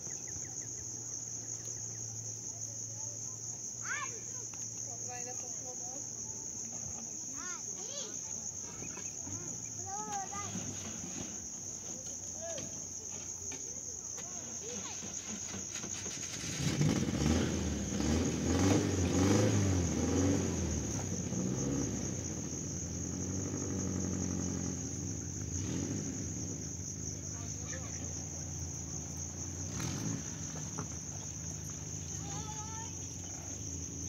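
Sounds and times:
crickets chirring: 0.0 - 34.0.

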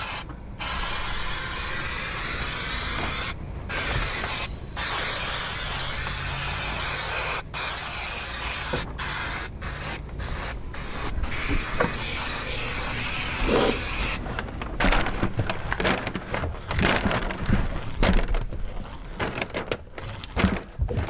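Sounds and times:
aerosol spray hissing: 0.0 - 14.2
rustling: 13.0 - 21.0.

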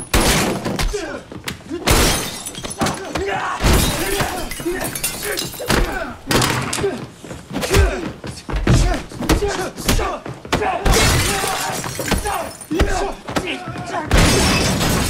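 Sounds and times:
fighters grunting: 0.8 - 1.9, 2.8 - 14.5
heavy thuds of blows: 5.6 - 11.4.

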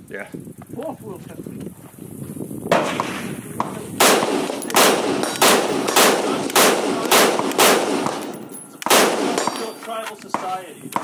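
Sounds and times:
rifle shots with ringing tail: 2.7 - 11.0.

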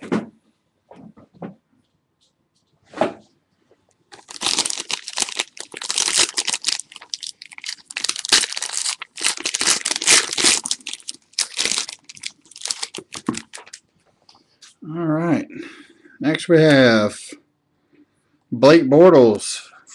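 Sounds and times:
foil wrapper crinkling and tearing: 4.1 - 13.8.

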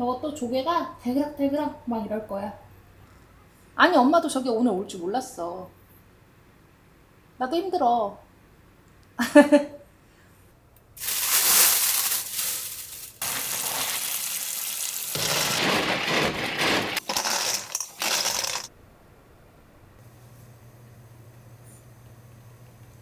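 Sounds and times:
shells clattering in metal bowl: 11.0 - 18.7
tap water running: 13.2 - 18.7.

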